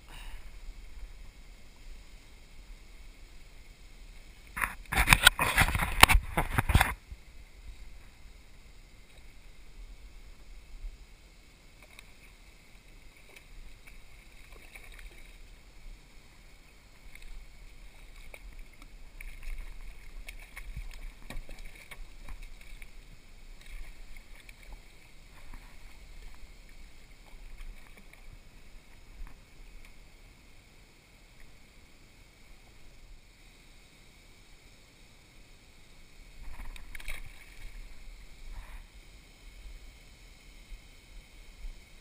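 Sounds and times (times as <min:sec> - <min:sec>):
water splashing by fish thrashing: 0:04.5 - 0:07.0, 0:11.8 - 0:15.8, 0:16.9 - 0:30.1, 0:36.4 - 0:38.4.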